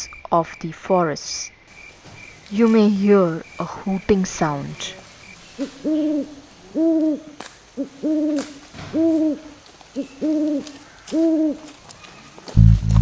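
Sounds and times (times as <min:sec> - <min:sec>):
owl hooting: 0:03.3 - 0:11.7.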